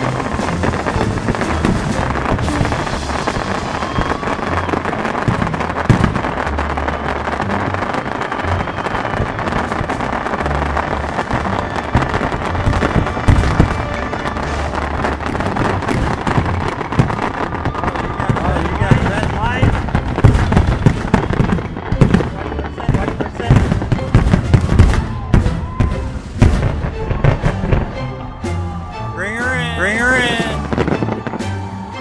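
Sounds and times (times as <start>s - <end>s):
music with deep bass: 0.0s - 8.4s
sharp firework bangs: 0.0s - 28.0s
fireworks bursting and crackling: 0.0s - 32.0s.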